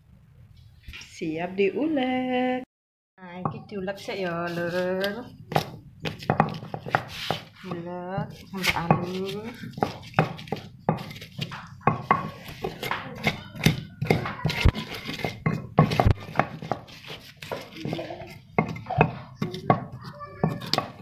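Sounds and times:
stone pestle pounding in mortar: 5.5 - 21.0.

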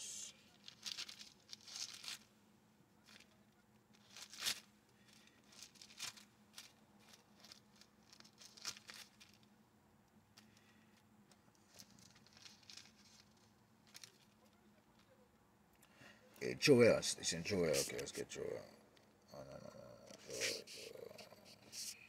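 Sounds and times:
paper pages turning: 0.6 - 2.3, 3.9 - 9.5, 11.6 - 14.6.

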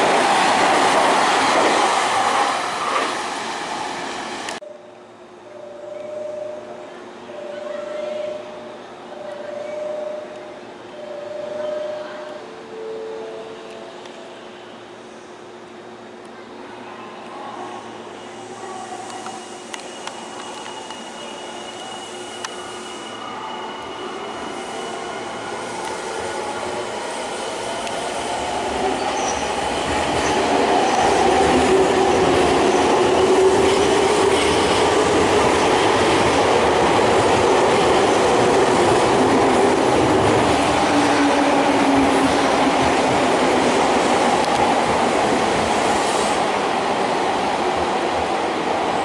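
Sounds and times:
train wheels on rails: 0.0 - 4.6, 18.0 - 49.0.

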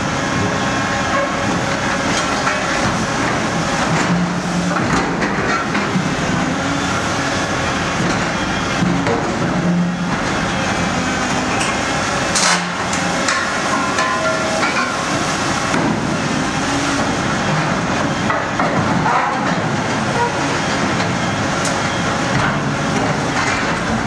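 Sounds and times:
diesel engine under load: 0.0 - 24.0
metal scrap clanking and crunching: 12.3 - 15.2.

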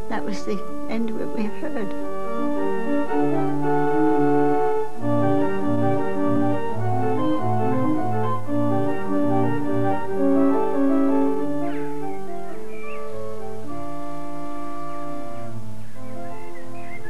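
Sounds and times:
pipe organ chords: 0.0 - 17.0.

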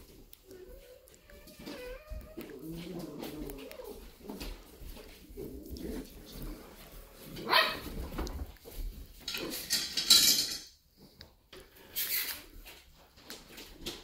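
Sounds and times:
dogs play-wrestling: 0.0 - 10.1.

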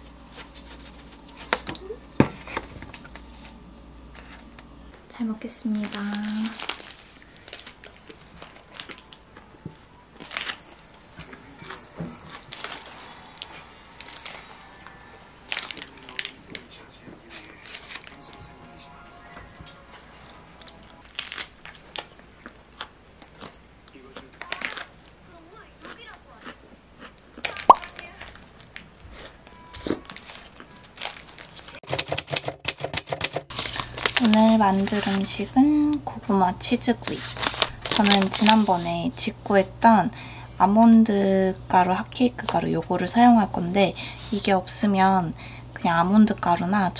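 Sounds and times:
paper wrapper crinkling: 0.2 - 3.3, 5.6 - 9.5, 10.1 - 18.4, 20.1 - 23.6, 30.0 - 32.1, 33.3 - 36.0, 36.8 - 39.2
person chewing: 19.9 - 25.1, 25.7 - 27.8.

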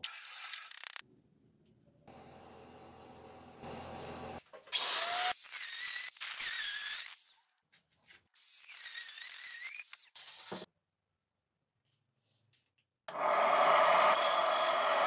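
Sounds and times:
power tool motor whine: 13.1 - 15.0.

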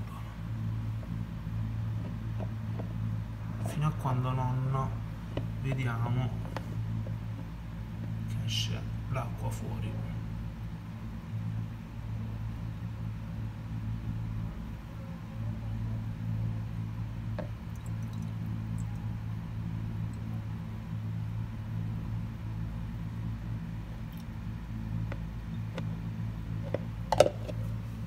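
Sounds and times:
low electrical hum: 0.0 - 28.0
water pouring from a jug: 17.4 - 18.9.

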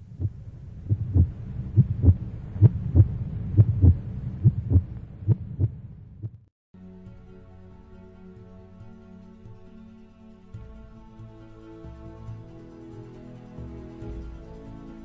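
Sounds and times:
heartbeat thumps: 0.0 - 6.5
soft music with held notes: 6.8 - 15.0.

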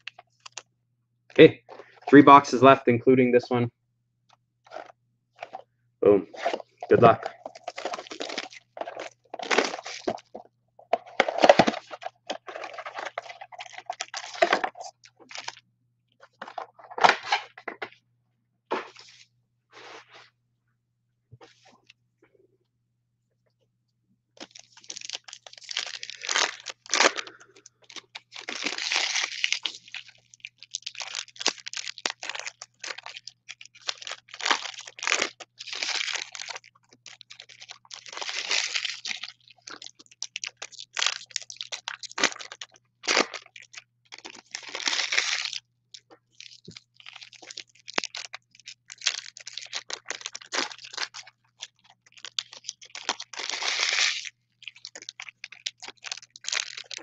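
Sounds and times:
foil and plastic wrapping crinkling: 6.3 - 15.6, 24.4 - 57.0.

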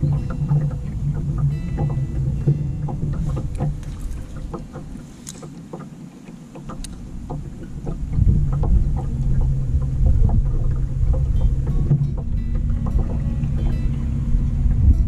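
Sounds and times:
electric boat motor humming: 0.0 - 15.0
light ticks and knocks: 0.0 - 15.0.

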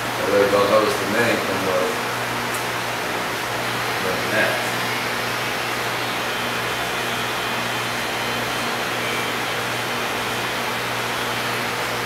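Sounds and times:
hair clipper humming: 4.0 - 11.6.

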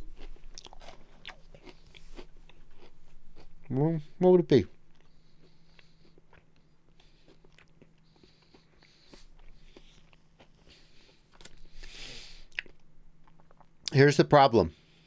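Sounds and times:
person chewing and crunching food: 0.0 - 14.0
person breathing: 4.9 - 12.6.

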